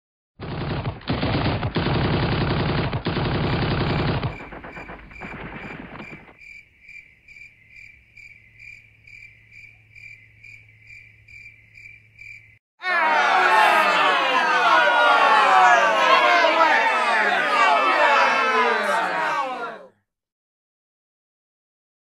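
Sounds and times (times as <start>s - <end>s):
loud dense rattling: 0.5s - 6.4s.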